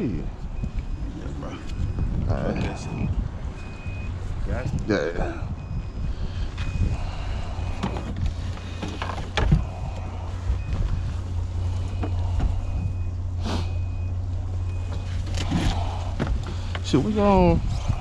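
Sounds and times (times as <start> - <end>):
alarm beeping: 0.0 - 4.7, 5.4 - 18.0
low hum: 0.0 - 18.0.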